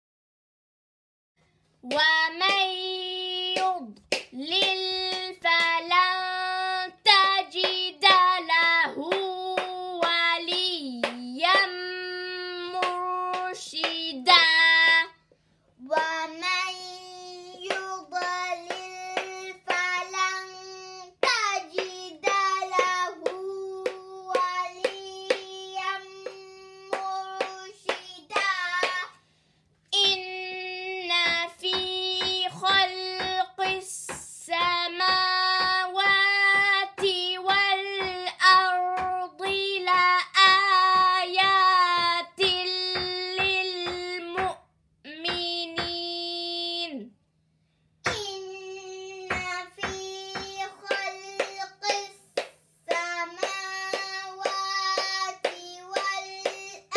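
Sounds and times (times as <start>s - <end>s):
child reciting in long notes: 15.8s - 29.1s, 48.1s - 56.9s.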